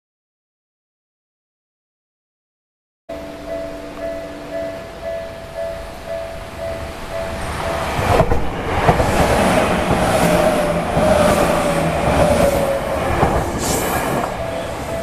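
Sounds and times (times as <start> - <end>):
electric train rumble: 3.1 - 15.0
level-crossing warning bell: 3.1 - 15.0
steady train whine: 3.1 - 15.0
wheels clacking over rail joints: 5.4 - 15.0.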